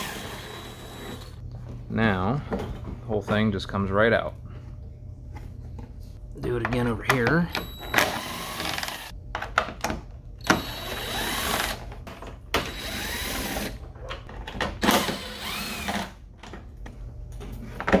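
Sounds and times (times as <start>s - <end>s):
cordless drill motor: 0.0s - 1.4s, 7.6s - 9.1s, 10.4s - 11.8s, 12.6s - 13.8s, 14.8s - 16.2s.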